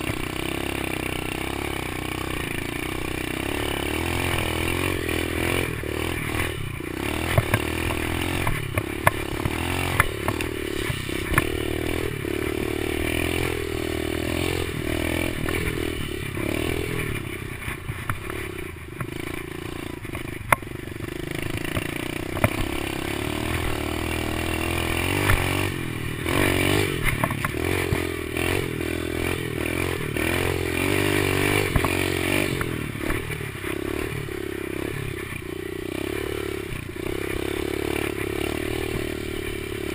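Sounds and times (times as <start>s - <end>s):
small motorbike engine revving: 0.0s - 39.9s
sharp knocks over rough ground: 3.9s - 13.6s, 14.4s - 19.4s, 21.5s - 29.4s, 30.6s - 34.3s.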